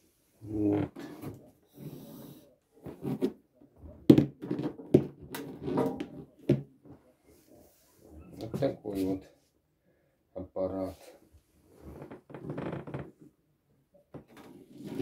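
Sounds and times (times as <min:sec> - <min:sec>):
metal case knocking and scraping: 0:04.3 - 0:06.3.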